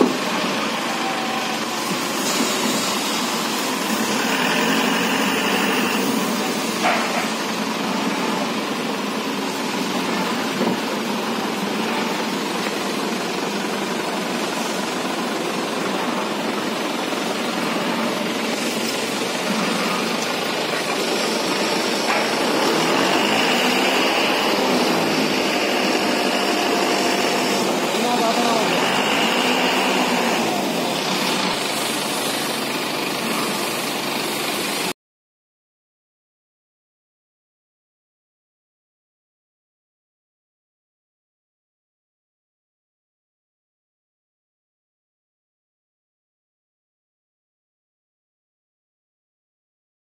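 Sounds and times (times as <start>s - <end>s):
truck engine running: 0.0s - 34.9s.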